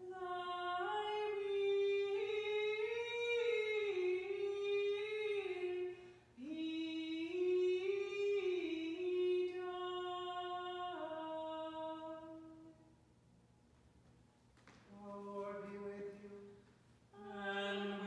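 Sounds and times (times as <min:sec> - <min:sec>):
solo voice chanting: 0:17.2 - 0:18.0.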